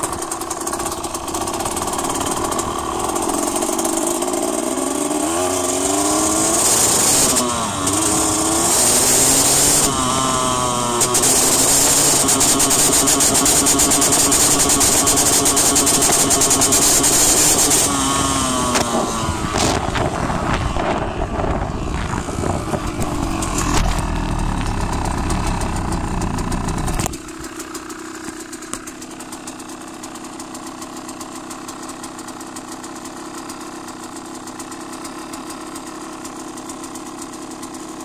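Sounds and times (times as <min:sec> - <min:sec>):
small engine running and idling: 0:00.0 - 0:38.0
tyres on gravel: 0:18.3 - 0:29.0.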